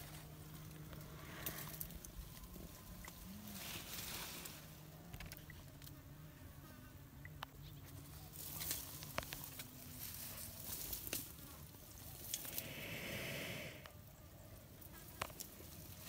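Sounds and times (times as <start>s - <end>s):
fly buzzing: 12.4s - 14.0s.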